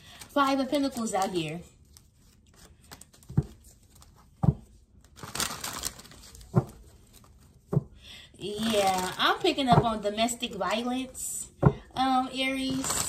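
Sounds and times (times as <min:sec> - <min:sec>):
cards shuffling: 0:00.0 - 0:04.4
cards thumping: 0:02.1 - 0:08.0.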